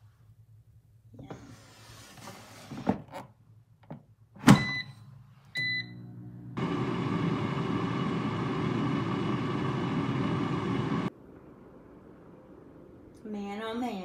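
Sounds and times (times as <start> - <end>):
air fryer fan running: 5.6 - 11.1.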